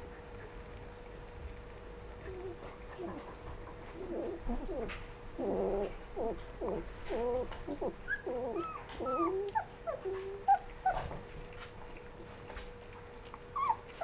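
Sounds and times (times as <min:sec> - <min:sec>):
puppies whining and yipping: 0:03.9 - 0:11.2, 0:13.4 - 0:14.0.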